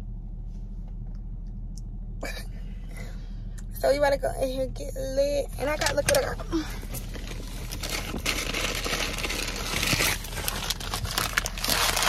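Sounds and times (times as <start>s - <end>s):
paper crinkling and rustling: 6.9s - 12.0s.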